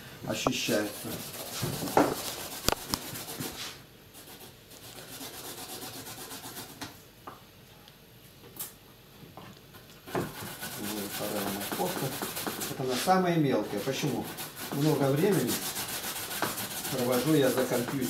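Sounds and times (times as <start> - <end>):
carrot grated on metal grater: 13.7 - 18.0.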